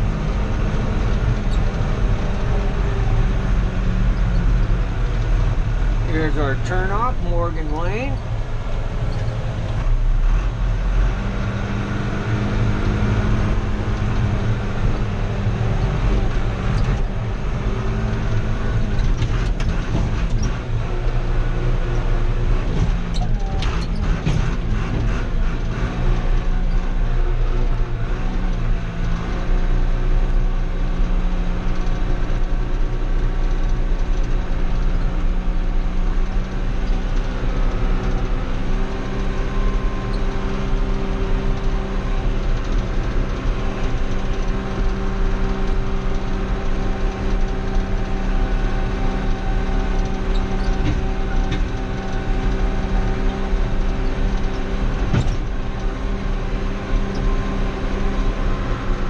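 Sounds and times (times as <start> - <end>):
tractor diesel engine running: 0.0 - 59.0
knocks and rattles: 17.9 - 20.9, 22.6 - 26.8.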